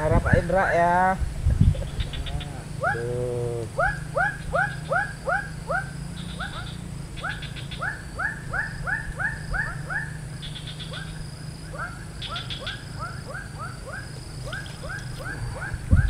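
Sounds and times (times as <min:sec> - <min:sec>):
steady low hum: 0:00.0 - 0:16.0
animal calling in short calls: 0:02.0 - 0:07.4.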